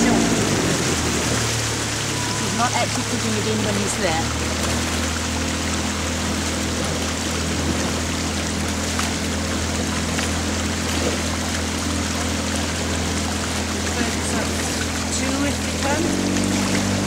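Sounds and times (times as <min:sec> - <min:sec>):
outboard motor running: 0:00.0 - 0:17.0
water rushing past hull: 0:00.0 - 0:17.0.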